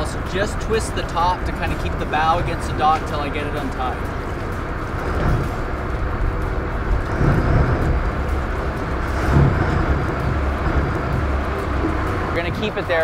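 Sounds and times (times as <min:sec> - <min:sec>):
boat diesel engines idling: 0:00.0 - 0:13.0.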